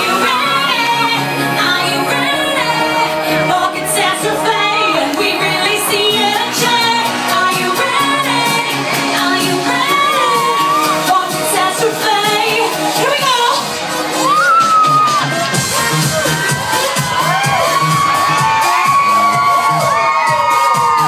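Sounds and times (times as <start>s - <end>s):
woman singing: 0.0s - 13.7s
pop backing track with beat: 0.0s - 21.0s.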